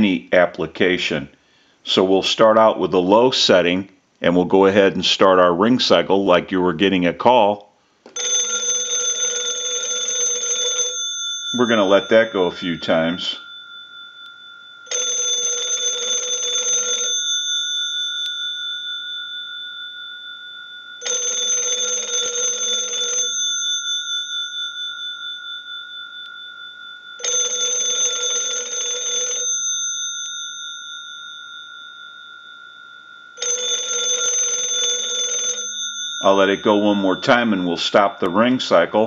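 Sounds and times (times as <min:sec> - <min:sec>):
telephone bell gongs ringing: 0:08.1 - 0:38.9.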